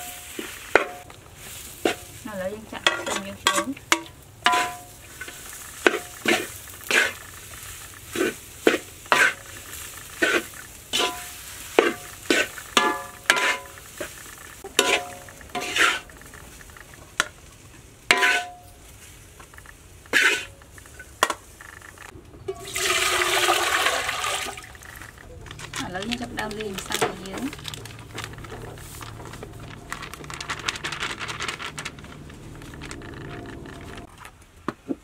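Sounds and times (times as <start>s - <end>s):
spatula scraping a wok: 0.0s - 17.4s, 18.0s - 22.1s
water pouring into metal pot: 22.5s - 25.3s.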